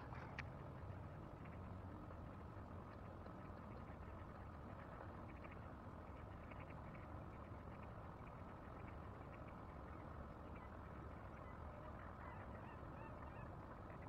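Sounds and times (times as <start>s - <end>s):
low steady rumble: 0.0s - 14.0s
faint bird calls and chirps: 6.2s - 14.0s.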